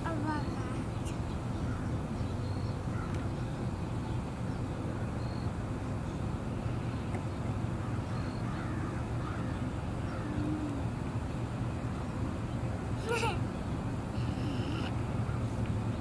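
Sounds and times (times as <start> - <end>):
low outdoor rumble: 0.0 - 16.0
crow cawing: 8.4 - 10.4.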